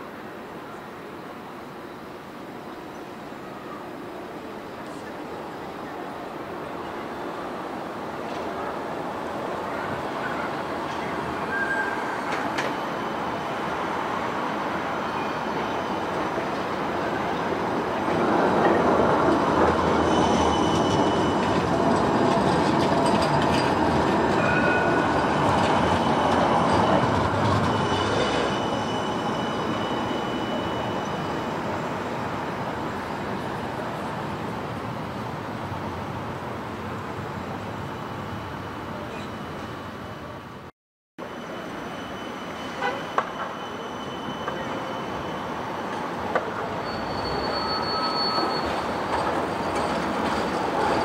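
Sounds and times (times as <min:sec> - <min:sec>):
tram rolling past on track: 0:00.0 - 0:51.0
high wheel squeals: 0:09.8 - 0:17.4, 0:18.3 - 0:32.3, 0:41.2 - 0:51.0.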